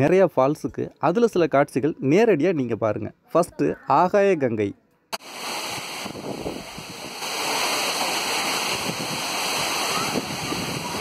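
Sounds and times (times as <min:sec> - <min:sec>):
waterfall rushing: 0:05.2 - 0:11.0.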